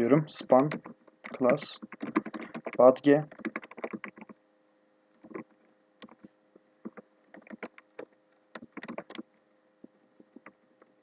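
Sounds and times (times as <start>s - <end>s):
keystrokes on computer keyboard: 0.2s - 4.4s, 5.2s - 10.6s.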